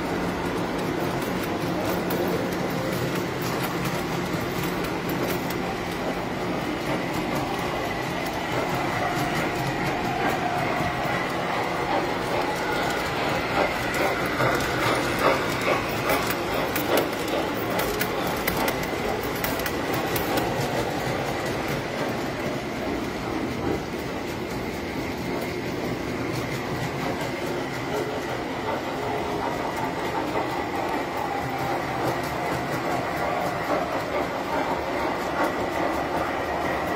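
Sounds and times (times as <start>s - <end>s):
toy train running with whine: 0.0s - 36.9s
wheels clicking over rail joints: 0.0s - 36.9s.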